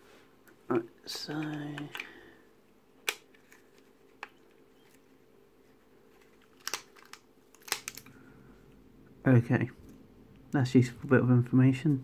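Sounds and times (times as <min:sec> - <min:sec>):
faint steady hum: 0:00.0 - 0:12.0
plastic parts clicking: 0:03.0 - 0:05.0, 0:06.2 - 0:08.1.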